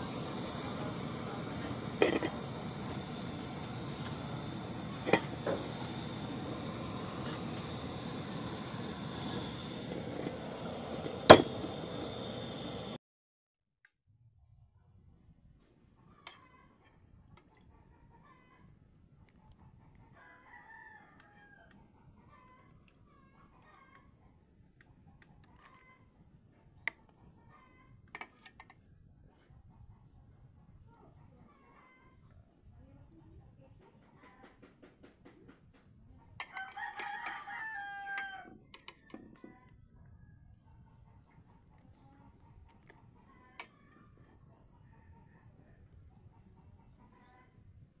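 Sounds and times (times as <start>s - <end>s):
distant rooster crowing: 0.0s - 13.0s, 20.1s - 21.8s, 36.4s - 38.8s, 43.2s - 46.0s
spoon clinking on metal pot: 2.0s - 2.4s.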